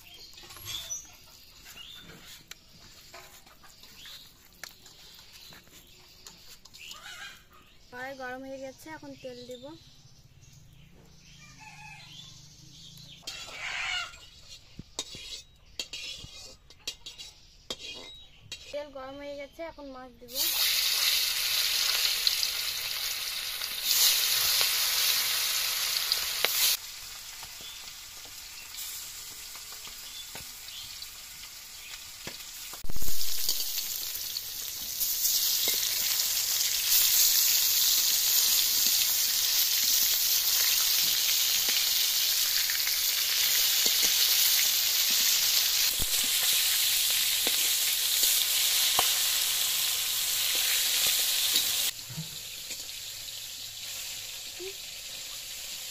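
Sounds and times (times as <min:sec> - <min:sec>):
spatula stirring: 0:01.6 - 0:07.0, 0:14.2 - 0:18.8
fish sizzling in hot oil: 0:20.3 - 0:55.9.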